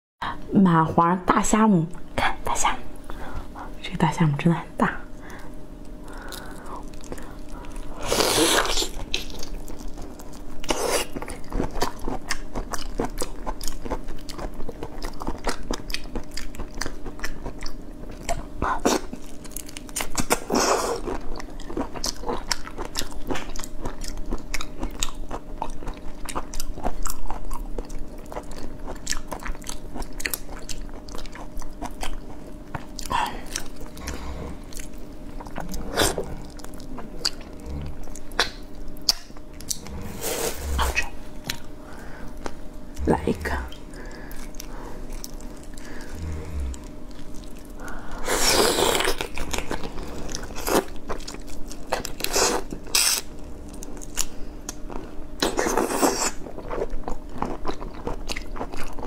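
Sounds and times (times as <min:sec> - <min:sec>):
wet chewing: 0:05.3 - 0:59.0
sucking sounds: 0:39.7 - 0:42.2, 0:45.8 - 0:47.0.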